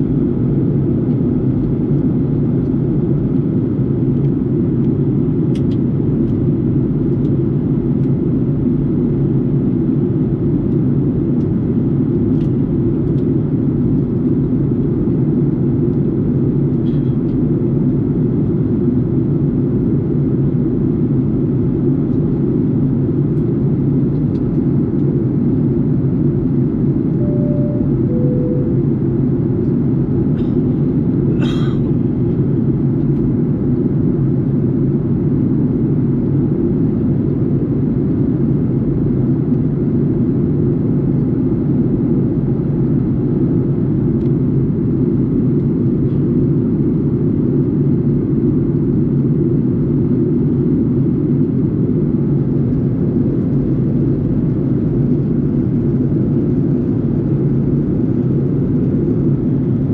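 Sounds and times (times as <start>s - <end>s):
airliner cabin drone: 0.0s - 59.9s
two-tone soft chime: 27.2s - 29.0s.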